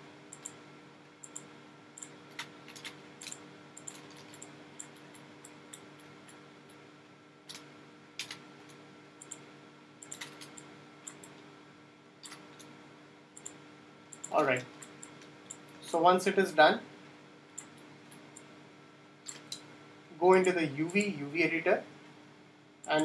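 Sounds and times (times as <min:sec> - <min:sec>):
faint hum: 0:00.0 - 0:23.0
mouse and keyboard clicks: 0:01.2 - 0:06.4, 0:10.0 - 0:11.4.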